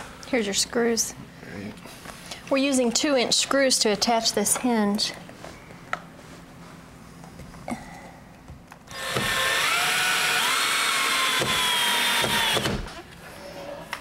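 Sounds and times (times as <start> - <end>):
cordless drill driving screw: 8.9 - 12.8.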